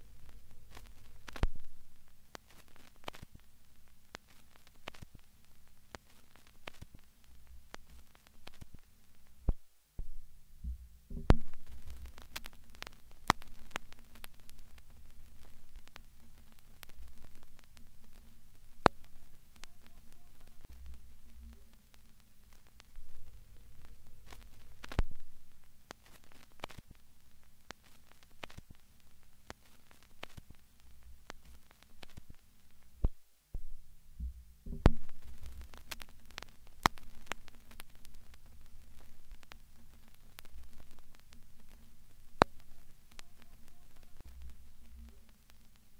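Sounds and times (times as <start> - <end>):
sharp clicks and crackles: 0.0 - 9.7, 10.6 - 45.9
low steady hum: 0.0 - 45.9
louder thumps: 10.0 - 11.7, 33.6 - 35.3.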